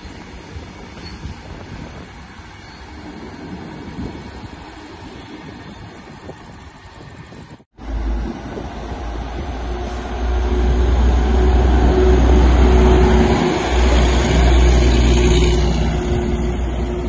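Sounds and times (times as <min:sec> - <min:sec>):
diesel engine droning: 0:07.8 - 0:17.0.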